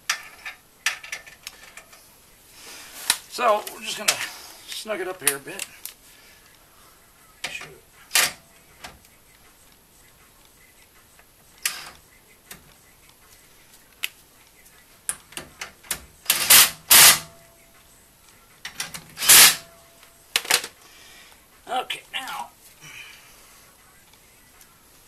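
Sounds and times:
impact driver bursts: 16.3 - 17.3, 19.2 - 19.6.

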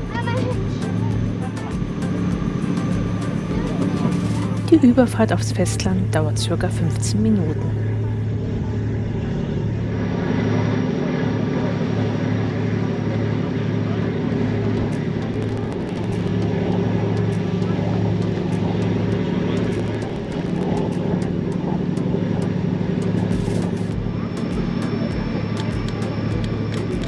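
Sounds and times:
ferry diesel engine droning: 0.0 - 27.0.

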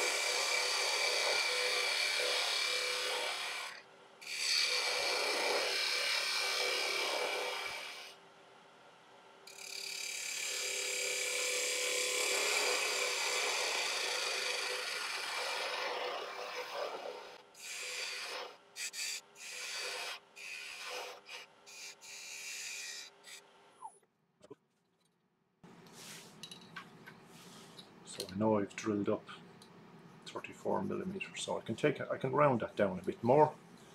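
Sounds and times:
lathe tool cutting wood: 0.0 - 8.1, 9.5 - 23.4.

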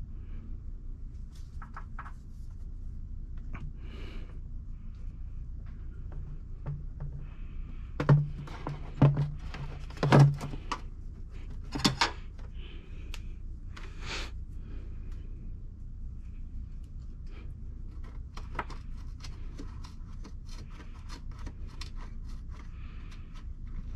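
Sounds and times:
knocks and thunks of parts: 6.2 - 10.9, 11.6 - 12.3.

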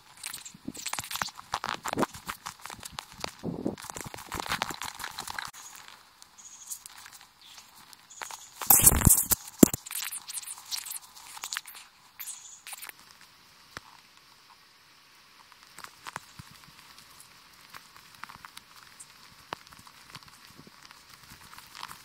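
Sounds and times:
burst of noise: 8.6 - 11.8.

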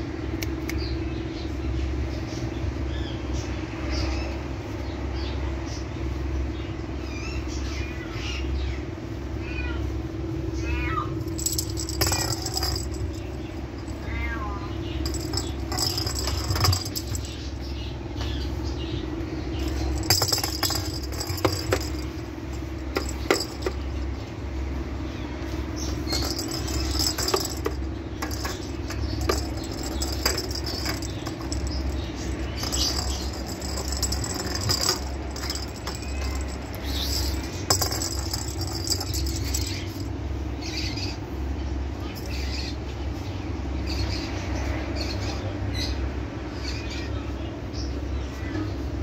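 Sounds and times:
high rattling: 11.2 - 17.9, 19.5 - 24.4, 25.8 - 40.2.

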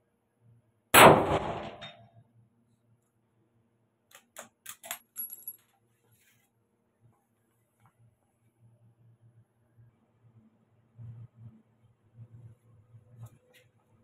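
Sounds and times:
rifle shot with echo: 1.0 - 2.0.

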